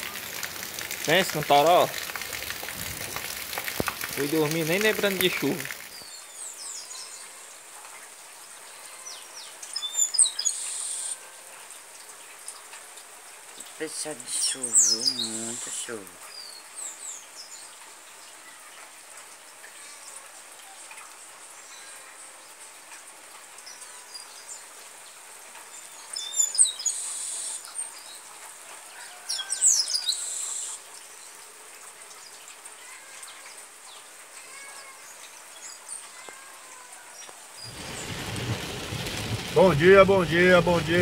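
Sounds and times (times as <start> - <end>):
rain hissing: 0.0 - 18.4, 29.6 - 41.0
birds chirping: 14.4 - 17.6, 37.6 - 41.0.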